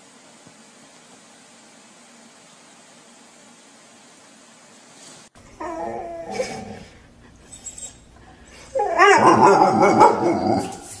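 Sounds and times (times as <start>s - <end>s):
dog whining: 5.5s - 11.0s.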